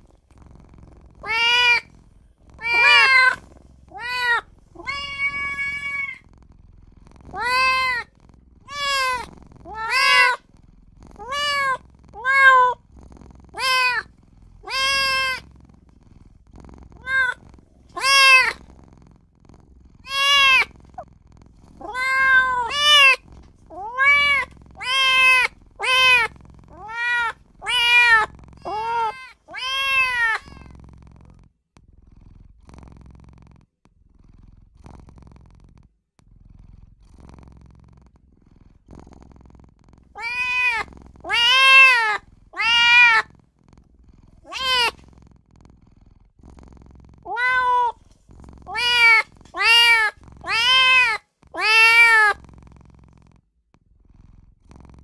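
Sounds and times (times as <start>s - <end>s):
kitten meowing: 1.2s - 1.9s, 2.6s - 6.2s, 7.3s - 8.1s, 8.7s - 10.4s, 11.2s - 12.8s, 13.6s - 15.4s, 17.0s - 18.6s, 20.0s - 20.7s, 21.8s - 30.8s, 40.2s - 43.3s, 44.4s - 45.0s, 47.3s - 48.0s, 48.7s - 52.4s.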